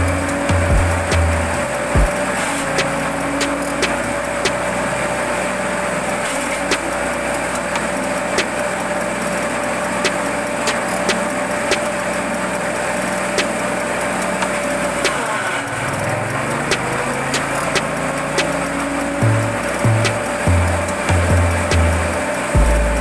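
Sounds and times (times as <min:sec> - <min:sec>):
chaff cutter humming: 0:00.0 - 0:23.0
fodder being chopped snaps: 0:16.7 - 0:18.6.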